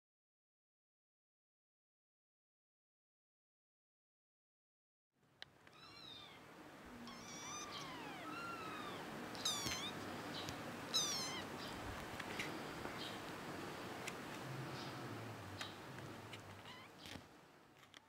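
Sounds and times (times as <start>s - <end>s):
kittens mewing: 5.7s - 12.1s, 16.0s - 17.2s.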